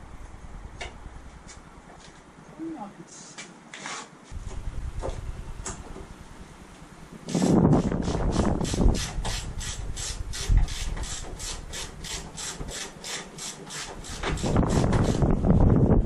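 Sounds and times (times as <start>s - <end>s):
ratchet spanner clicking: 8.6s - 15.2s.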